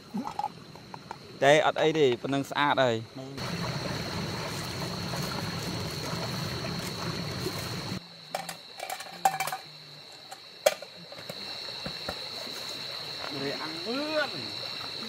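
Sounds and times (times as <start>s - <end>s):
water running and trickling: 3.4s - 15.0s.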